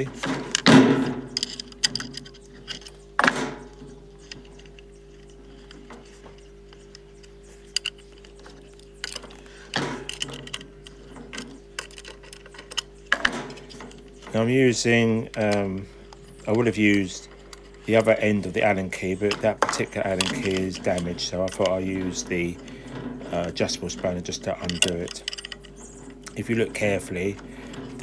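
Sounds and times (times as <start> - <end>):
faint steady hum: 0.0 - 28.0
metal clanks: 0.0 - 28.0
metal parts clinking and rattling: 0.0 - 28.0.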